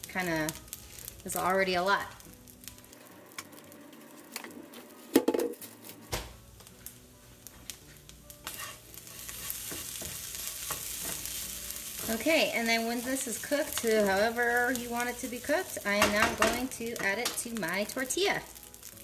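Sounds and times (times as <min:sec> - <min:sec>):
food sizzling: 0:00.0 - 0:19.0
spatula scraping frying pan: 0:08.4 - 0:17.2.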